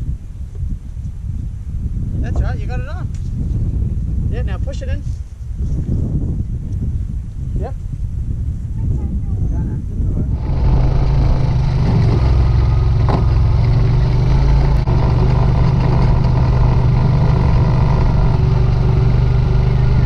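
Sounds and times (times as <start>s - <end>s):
quad bike engine running: 10.3s - 20.0s.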